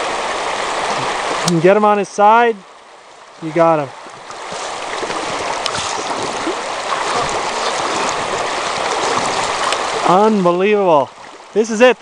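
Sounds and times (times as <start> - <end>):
river water rushing over gravel: 0.0 - 12.0.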